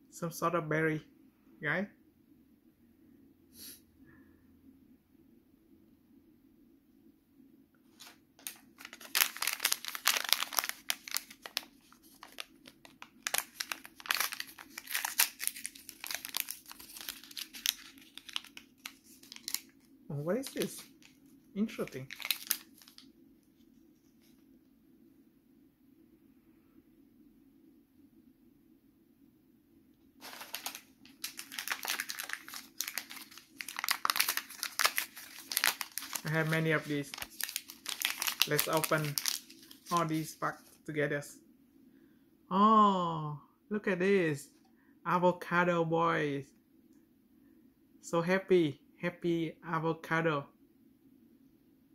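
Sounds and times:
plastic foil packet crinkling: 8.0s - 23.0s, 30.2s - 40.8s
plastic wrapper crackling: 8.0s - 23.1s, 30.2s - 40.8s.

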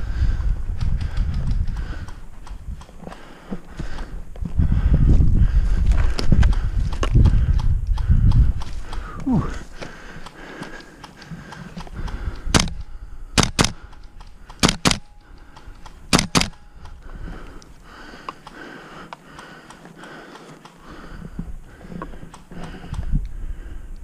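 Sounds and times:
airsoft gun firing: 12.5s - 12.8s, 13.4s - 15.1s, 15.9s - 16.6s.

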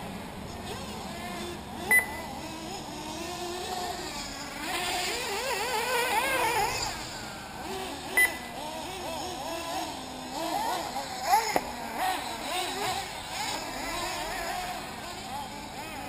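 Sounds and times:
rc buggy engines whining: 0.0s - 16.0s
short loud beep: 8.2s - 8.5s.

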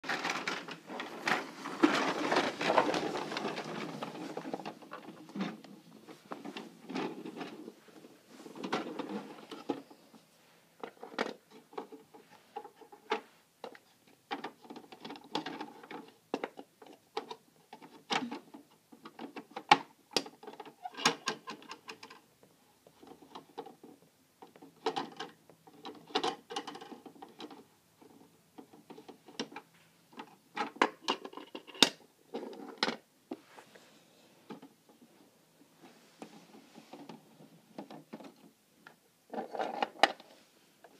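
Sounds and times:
toy truck rolling rattle: 0.0s - 5.7s.

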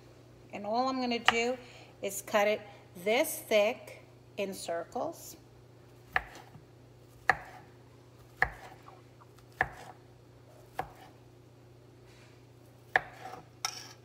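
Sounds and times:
knife slicing salami: 10.7s - 11.2s, 12.9s - 14.0s.

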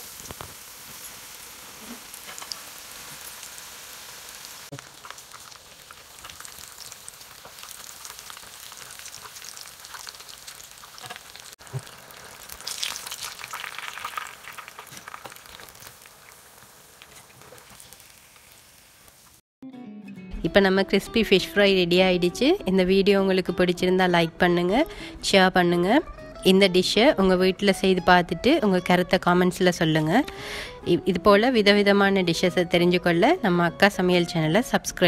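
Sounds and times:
popping crackles of oil: 0.0s - 1.2s, 4.6s - 19.4s
fish deep-frying in oil: 0.0s - 19.4s.

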